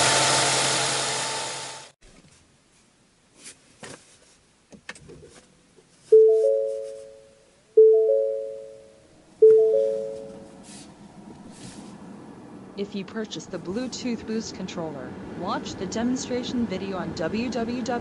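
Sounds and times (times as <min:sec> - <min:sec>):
car warning chime: 0:06.1 - 0:10.5.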